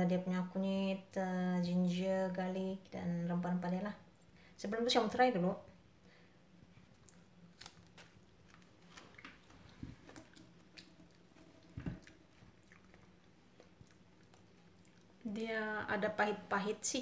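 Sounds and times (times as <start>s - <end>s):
chewing leaf: 6.9s - 15.2s.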